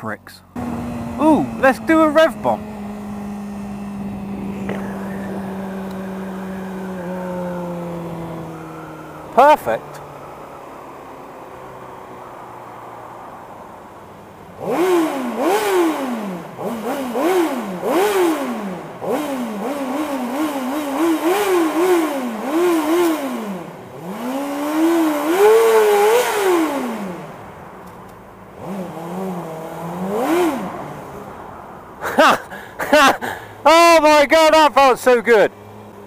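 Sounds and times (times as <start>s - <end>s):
motorcycle engine revving in tunnel: 0.5s - 12.4s, 14.5s - 27.6s, 28.5s - 31.5s.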